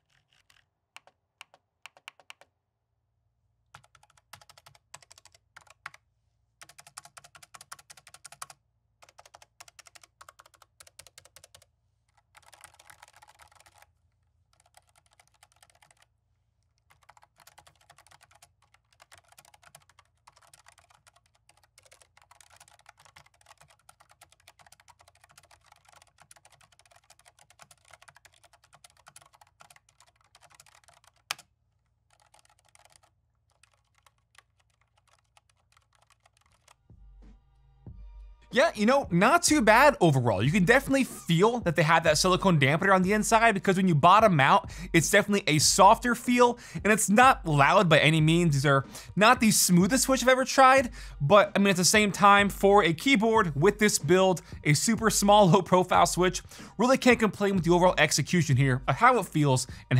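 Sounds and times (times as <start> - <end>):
keyboard typing: 0.0 - 2.5, 3.7 - 6.0, 6.6 - 13.9, 14.5 - 16.1, 16.7 - 31.5, 32.1 - 36.8.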